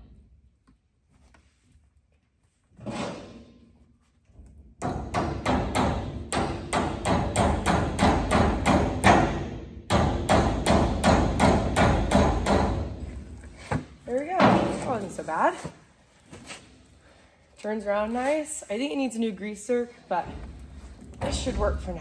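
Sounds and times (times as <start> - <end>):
hammer striking steel: 4.8 - 12.9.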